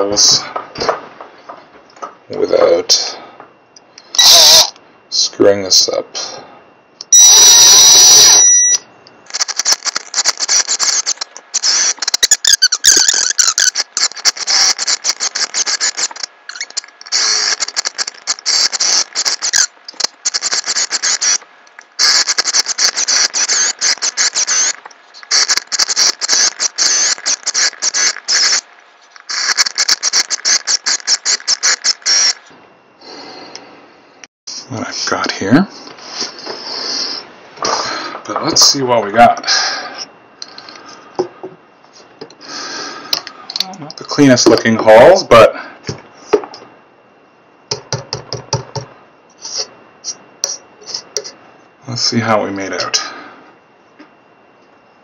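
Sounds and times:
drill bit cutting wood: 4.2 - 4.7, 7.2 - 21.4, 22.0 - 28.6, 29.2 - 32.5.

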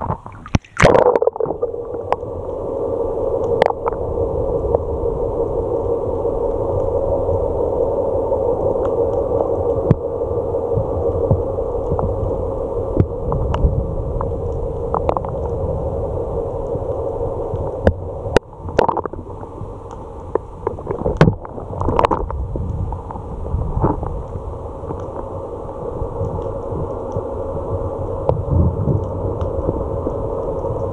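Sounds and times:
clicks and pops: 0.0 - 2.6, 17.6 - 19.2
muffled underwater rush: 0.0 - 30.9.

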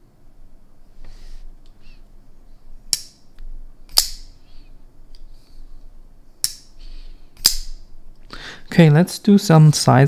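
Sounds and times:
folding knife blade snapping: 2.9 - 3.2, 3.9 - 4.3, 6.4 - 6.7, 7.4 - 7.8.

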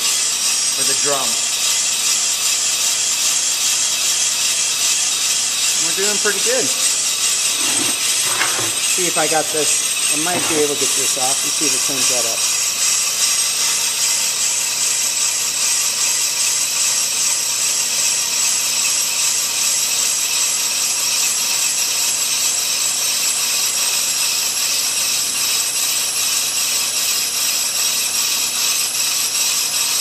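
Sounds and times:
brake lathe scraping hiss: 0.0 - 14.0.

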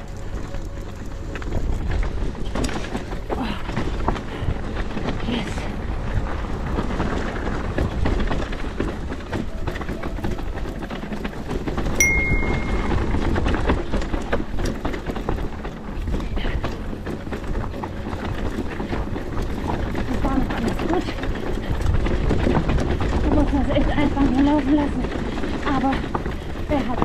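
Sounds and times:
bike tyres rumbling over dirt: 0.0 - 27.0
bike knocks and rattles: 6.1 - 27.0
brief high tone: 12.0 - 13.2.

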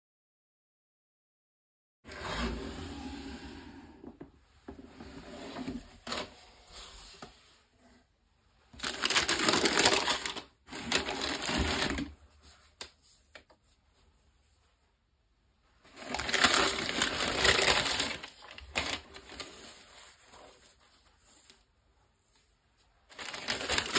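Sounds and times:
tissue paper crinkling: 8.8 - 13.3, 15.9 - 21.7, 23.1 - 23.9.

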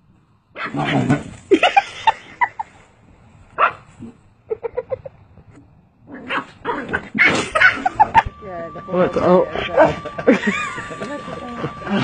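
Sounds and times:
dog barking and yipping: 0.6 - 0.9, 3.6 - 3.9, 6.2 - 8.3.

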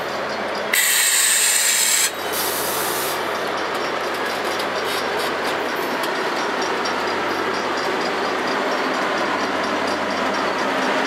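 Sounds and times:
train wheel rumble: 0.0 - 11.0.

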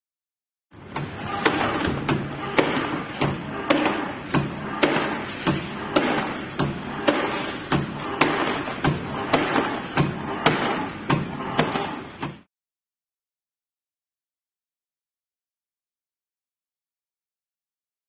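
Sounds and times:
spring coiling machine whirring: 0.8 - 12.5.

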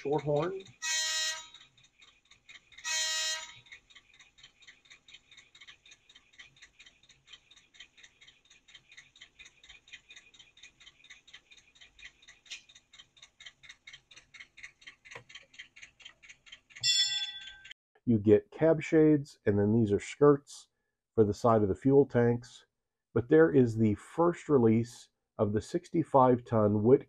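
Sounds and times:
fast faint ticking: 0.0 - 17.8.

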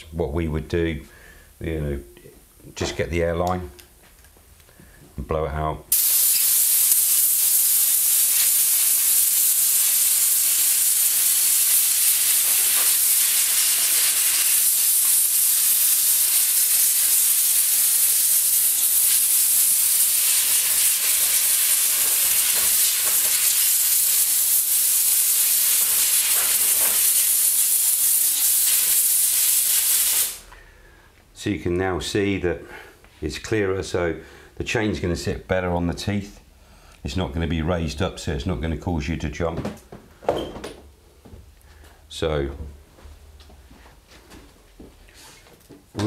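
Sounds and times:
compressed air blow gun hissing: 5.9 - 30.5.

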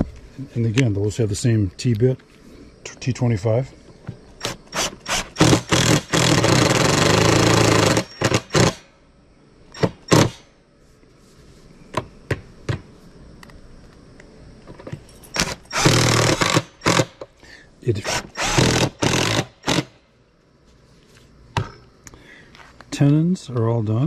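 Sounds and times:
cordless driver driving screw: 18.0 - 19.9.

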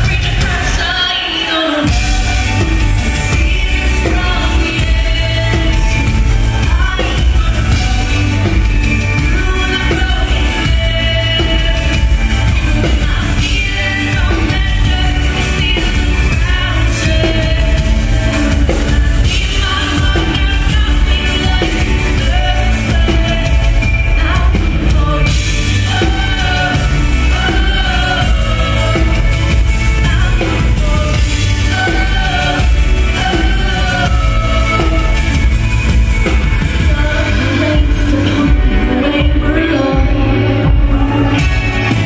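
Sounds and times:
electropop band playing: 0.0 - 42.0
woman singing lead: 0.0 - 42.0.

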